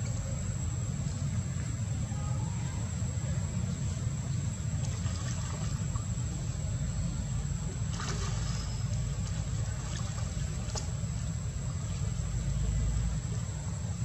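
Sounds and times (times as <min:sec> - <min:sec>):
steady low rumble: 0:00.0 - 0:14.0
water sloshing and trickling: 0:02.5 - 0:14.0
small water splashes: 0:04.7 - 0:13.8.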